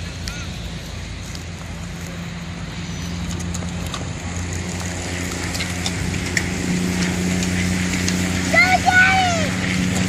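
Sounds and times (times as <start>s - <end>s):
racing bicycles clicking: 2.9s - 10.0s.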